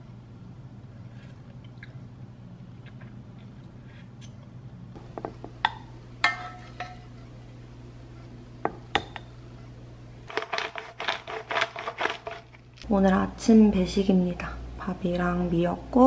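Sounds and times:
low steady hum: 0:00.0 - 0:16.0
dishes and cutlery clinking: 0:06.2 - 0:07.1.

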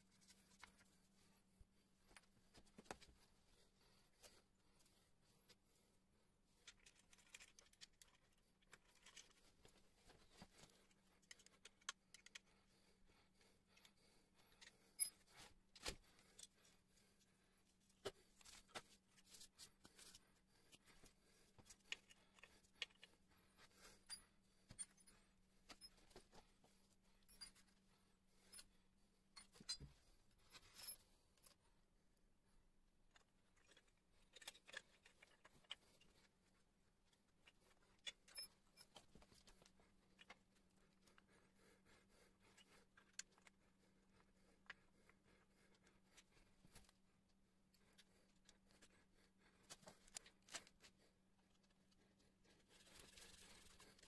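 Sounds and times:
screws and plastic cover rattling: 0:06.6 - 0:09.6.

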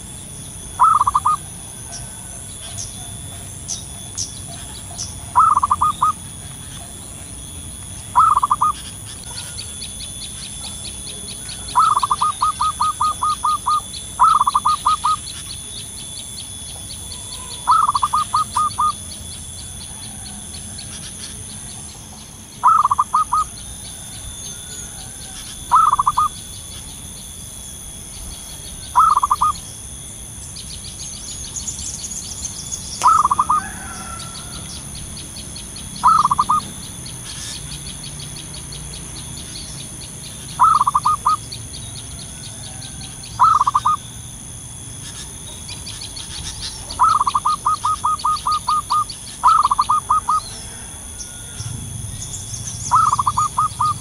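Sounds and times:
dove stuttering coos: 0:00.6 - 0:27.2, 0:27.9 - 0:29.7, 0:33.0 - 0:54.0
fast high-pitched ticking: 0:11.7 - 0:19.2, 0:25.6 - 0:26.6, 0:28.3 - 0:29.7.

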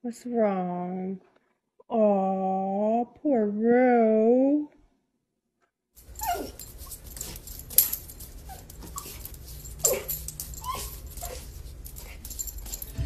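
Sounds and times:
puppy yipping and whining: 0:06.0 - 0:12.9
claws scrabbling on wooden floor: 0:06.0 - 0:13.0.

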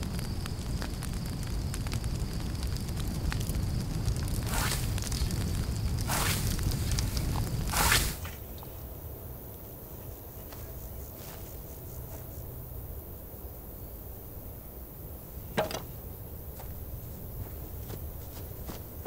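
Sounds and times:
low wind rumble: 0:00.0 - 0:19.0
grass rustling: 0:04.3 - 0:08.6, 0:10.3 - 0:12.6, 0:15.3 - 0:19.0.

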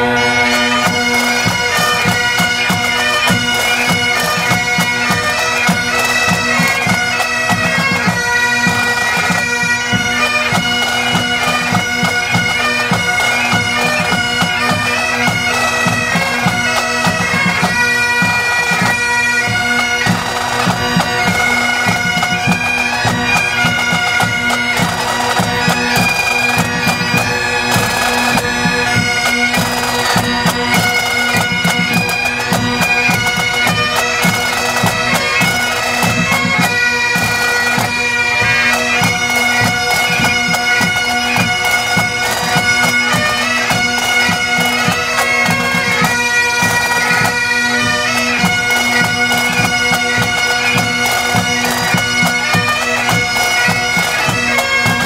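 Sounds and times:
bagpipes playing: 0:00.0 - 0:55.0.

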